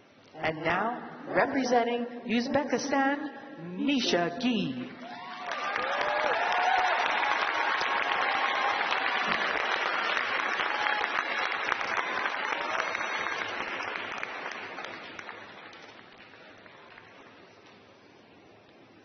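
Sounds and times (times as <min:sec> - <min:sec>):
audience applauding: 0:05.0 - 0:17.5.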